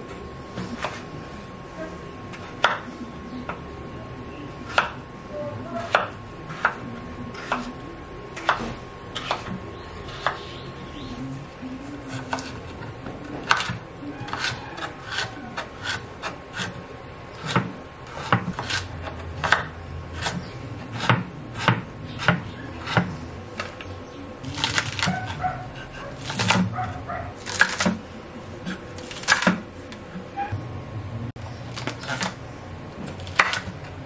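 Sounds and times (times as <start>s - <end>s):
knife chopping on wooden board: 8.4s - 10.4s, 12.1s - 16.8s, 17.4s - 23.7s, 24.4s - 28.0s, 28.6s - 29.6s, 33.0s - 33.8s.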